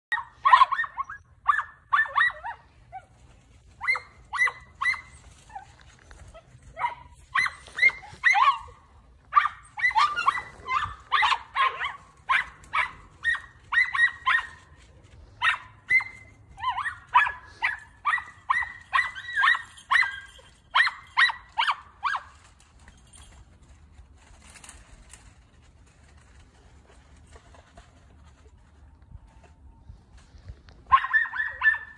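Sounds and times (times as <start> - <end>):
dogs barking: 6.7 - 14.8, 30.9 - 31.9.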